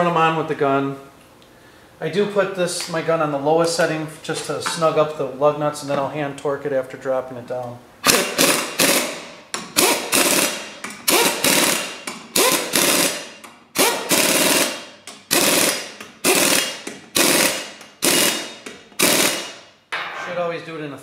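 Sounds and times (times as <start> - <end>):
impact gun rattling bursts: 8.0 - 19.6.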